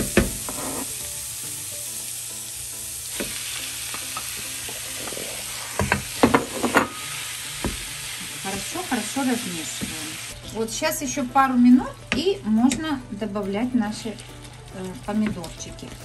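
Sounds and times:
leeks sizzling in frying pan: 0:00.0 - 0:16.0
wooden spatula knocking in pan: 0:05.8 - 0:07.0, 0:07.6 - 0:07.9.

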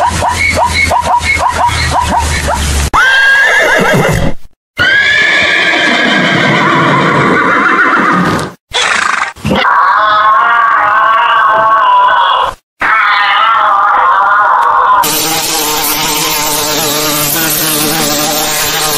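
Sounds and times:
horse whinnying: 0:03.0 - 0:13.6.

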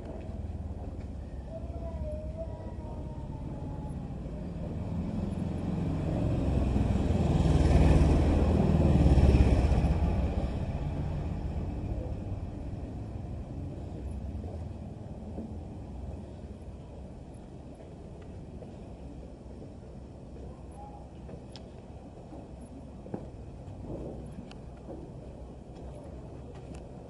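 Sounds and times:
motorbikes riding past: 0:03.6 - 0:14.6.

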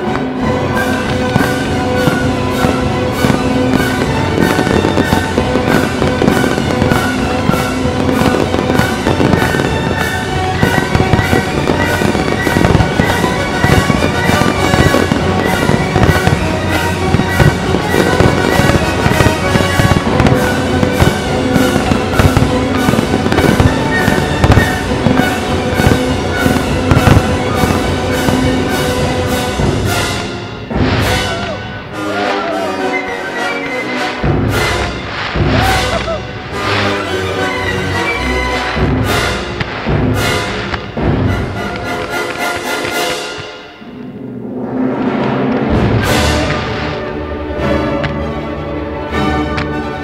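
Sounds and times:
fireworks bursting and crackling: 0:00.0 - 0:50.0
music with long held notes: 0:00.0 - 0:50.0.

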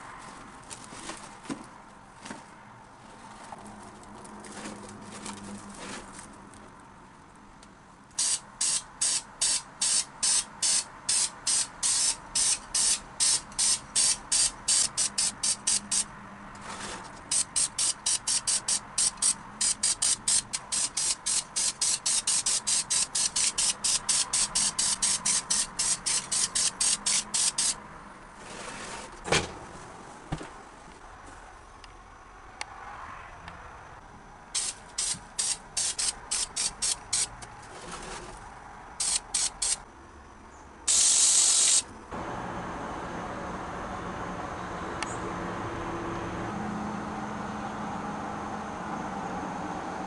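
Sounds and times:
spray paint can spraying bursts: 0:08.2 - 0:16.1, 0:17.3 - 0:27.8, 0:34.6 - 0:37.4, 0:39.0 - 0:39.8, 0:40.9 - 0:41.9.

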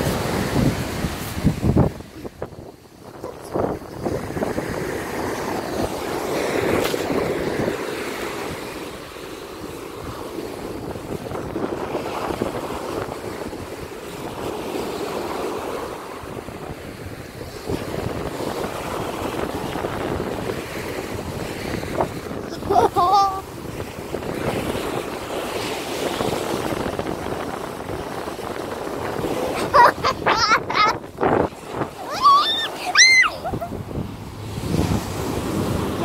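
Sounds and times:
sea waves washing on shore: 0:00.0 - 0:36.0
wind buffeting microphone: 0:00.0 - 0:36.0.

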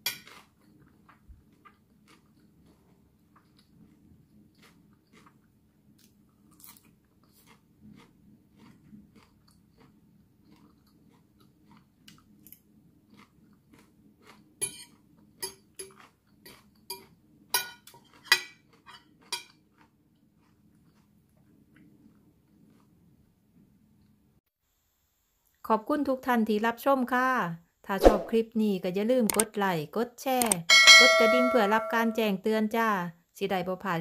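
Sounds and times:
person chewing food: 0:00.0 - 0:17.3, 0:18.0 - 0:23.2
sharp clicks: 0:29.3 - 0:29.5, 0:30.4 - 0:30.7.

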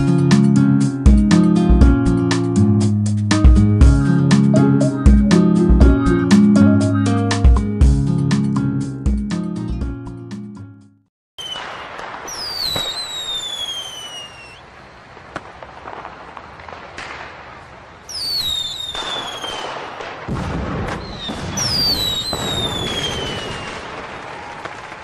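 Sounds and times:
whistling firework shells: 0:11.4 - 0:17.2, 0:17.9 - 0:25.0
firework cracks and crackling: 0:11.4 - 0:25.0.

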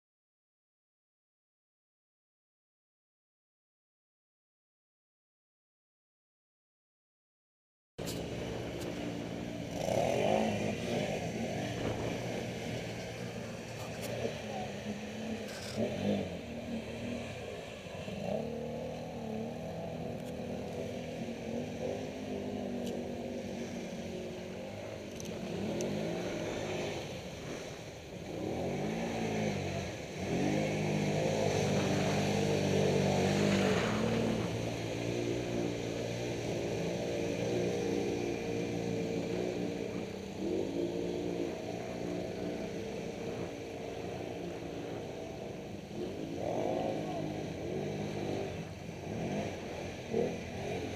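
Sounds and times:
water splashing: 0:08.0 - 0:46.4
quad bike engines revving: 0:08.0 - 0:50.9.

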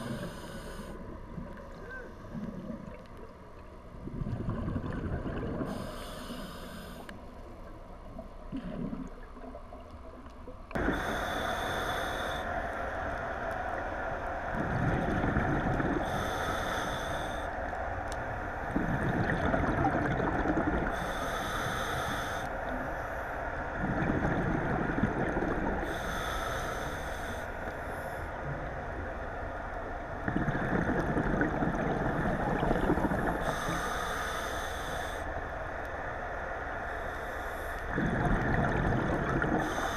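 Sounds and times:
hissing regulator inhale: 0:00.0 - 0:01.0, 0:05.6 - 0:07.2, 0:10.8 - 0:12.8, 0:16.0 - 0:17.6, 0:20.9 - 0:23.3, 0:25.8 - 0:28.4, 0:32.5 - 0:35.3, 0:36.9 - 0:38.3, 0:39.5 - 0:39.9
gurgling exhaled bubbles: 0:04.0 - 0:05.9, 0:14.5 - 0:16.3, 0:18.7 - 0:21.0, 0:23.8 - 0:26.0, 0:30.2 - 0:33.7, 0:37.9 - 0:39.9.

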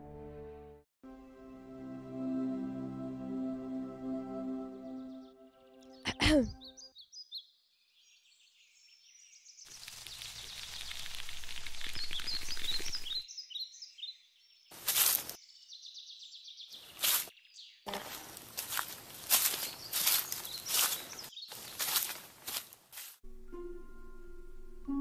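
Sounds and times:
small birds chirping: 0:05.9 - 0:22.2
rustling footsteps: 0:14.7 - 0:15.4, 0:16.8 - 0:17.3, 0:17.9 - 0:23.2.

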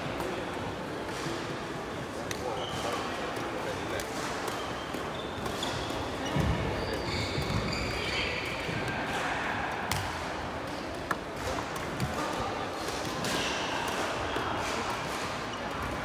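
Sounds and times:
shoe squeaks: 0:02.4 - 0:03.2, 0:04.6 - 0:08.6.

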